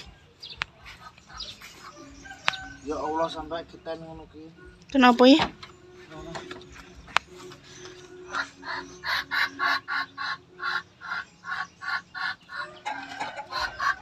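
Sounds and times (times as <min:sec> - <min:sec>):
chicken squawking: 0:08.3 - 0:14.0.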